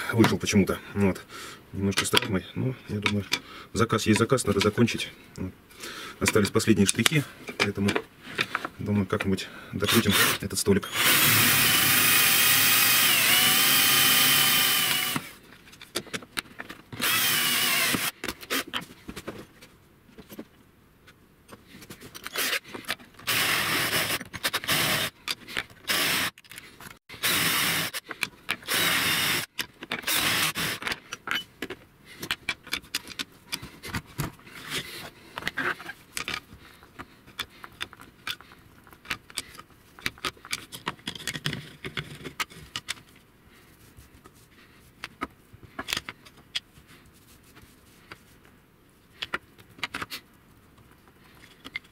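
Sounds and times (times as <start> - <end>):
clicks and scraping of parts: 1.9 - 3.5, 6.2 - 10.5, 14.4 - 51.9
cordless drill boring into wood: 9.9 - 15.4, 17.0 - 18.2, 22.3 - 22.6, 23.2 - 25.2, 25.9 - 26.4, 27.1 - 28.0, 28.6 - 30.8.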